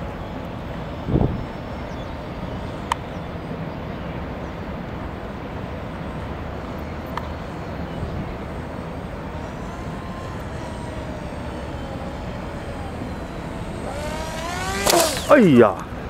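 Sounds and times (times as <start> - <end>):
distant model plane motor whine: 0.0 - 4.8, 5.7 - 16.0
single click: 14.8 - 15.3.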